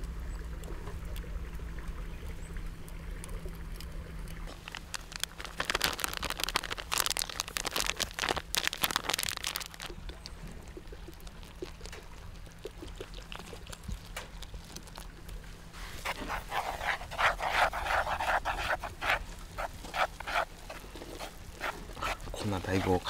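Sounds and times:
water trickling onto flour: 0.0s - 23.0s
chopsticks scraping wooden bowl: 15.8s - 23.0s.

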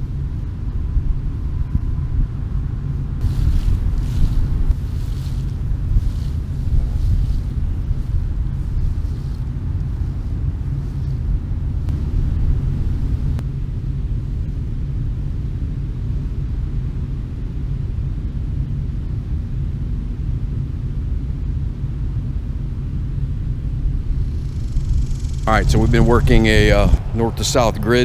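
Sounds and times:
wind buffeting microphone: 0.0s - 13.4s, 23.5s - 28.0s.

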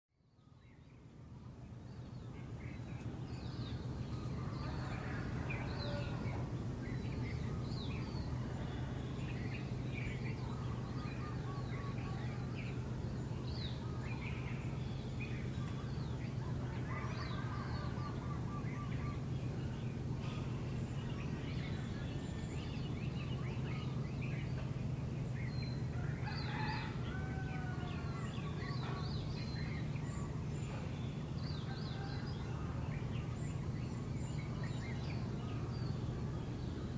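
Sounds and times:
many birds chirping: 0.3s - 36.9s
steady low hum: 0.4s - 36.9s.

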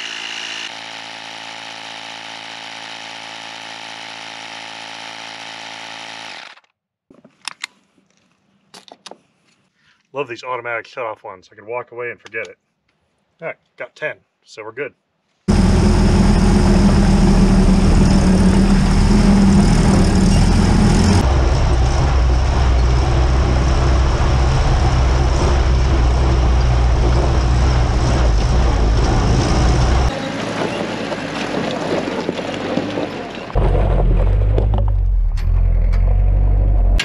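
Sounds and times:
jeep engine running: 15.5s - 37.0s
tires on dirt and gravel: 15.5s - 37.0s.

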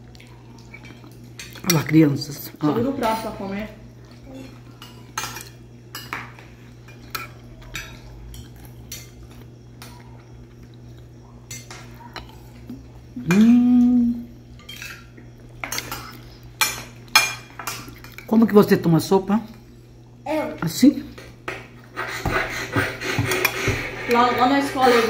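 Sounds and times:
steady low hum: 0.0s - 25.0s
person humming: 13.2s - 14.4s
spoon scraping plastic plate: 21.8s - 25.0s.

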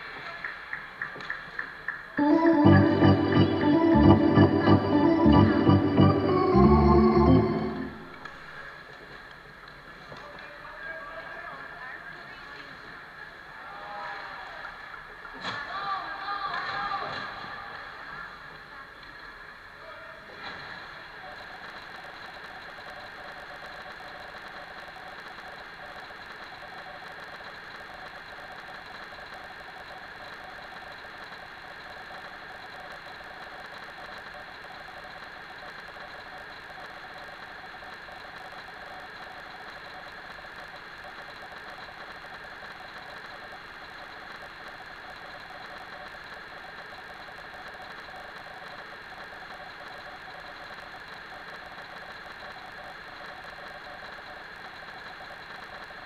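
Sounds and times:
machine hum with high whine: 1.1s - 9.4s, 20.4s - 56.0s.

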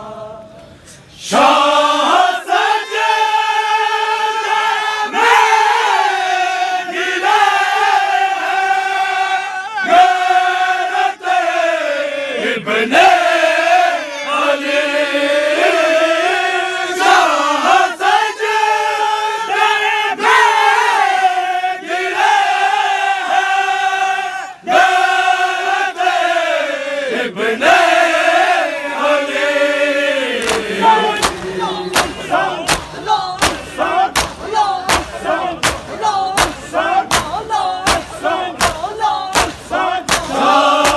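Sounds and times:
men chanting a lament in chorus: 0.0s - 40.9s
hands slapping bare chests: 30.4s - 40.9s.

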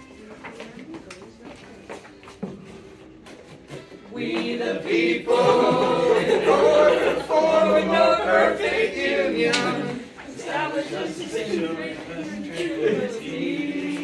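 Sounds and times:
group singing in chorus: 4.0s - 14.0s.

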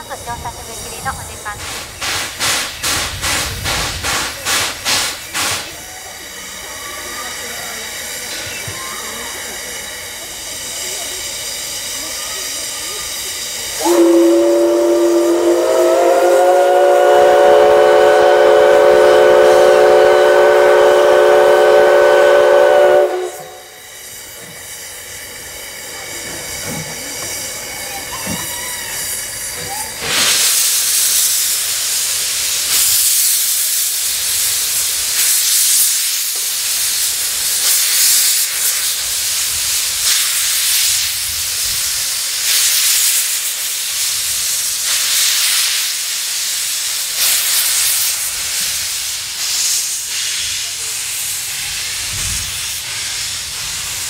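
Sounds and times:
loud hiss of steam: 0.0s - 54.0s
steam locomotive whistle: 13.8s - 23.8s.

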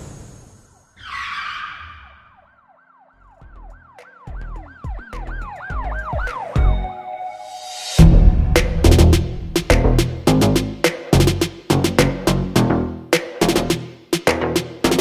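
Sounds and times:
whoosh: 7.5s - 10.3s
heavy bass hit: 8.0s - 12.3s.

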